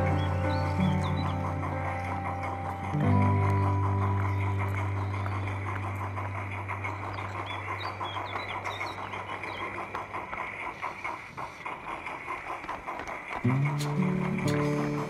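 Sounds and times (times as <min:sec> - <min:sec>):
bird chirps: 0:00.0 - 0:11.6
model train running on track: 0:00.0 - 0:15.0.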